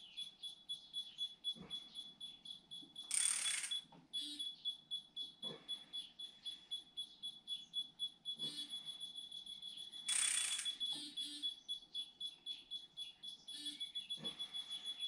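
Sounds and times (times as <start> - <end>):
pulsing high-pitched tone: 10.0 - 11.4.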